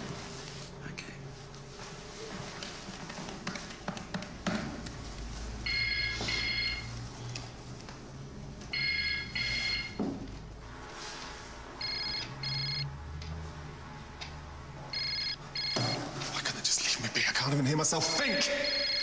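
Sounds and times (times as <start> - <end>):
telephone ringing: 5.6 - 6.9, 8.7 - 10.0, 11.8 - 12.8, 14.9 - 16.0, 18.3 - 19.0.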